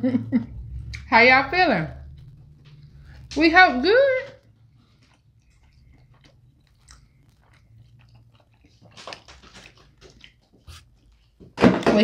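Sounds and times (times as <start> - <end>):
faint chewing: 0.6 - 11.4
crunchy wet bites: 4.4 - 11.0.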